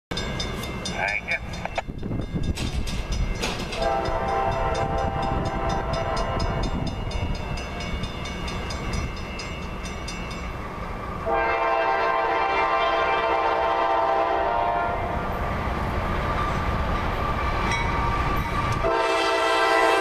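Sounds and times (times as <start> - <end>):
train rumble: 0.1 - 20.0
locomotive air horn blasting: 3.8 - 6.7, 11.2 - 15.2, 18.8 - 20.0.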